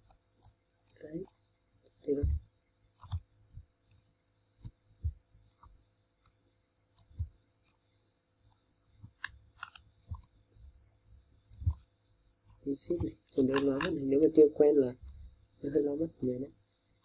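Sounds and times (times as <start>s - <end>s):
computer mouse clicking: 0.0s - 1.4s, 2.2s - 7.9s, 8.5s - 10.4s, 11.4s - 14.4s, 15.0s - 16.4s.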